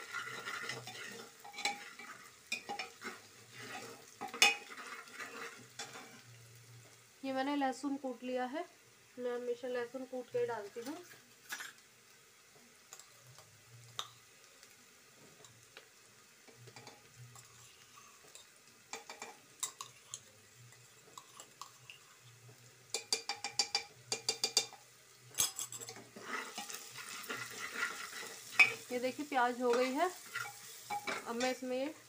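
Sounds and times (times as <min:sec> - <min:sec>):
metal utensils clinking: 0:00.0 - 0:06.2, 0:22.9 - 0:31.6
onions sizzling in oil: 0:00.0 - 0:32.0.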